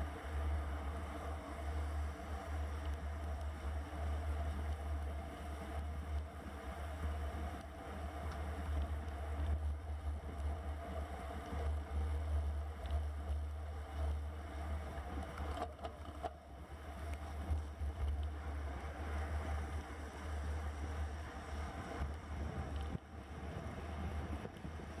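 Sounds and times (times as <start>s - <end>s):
wind rushing over microphone: 21.6s - 25.0s.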